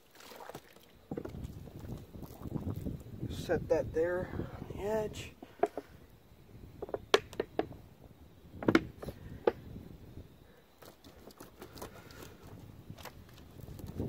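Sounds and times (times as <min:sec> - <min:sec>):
water splashing: 0:00.0 - 0:03.2
hands tapping plastic: 0:05.5 - 0:05.9, 0:06.8 - 0:07.8.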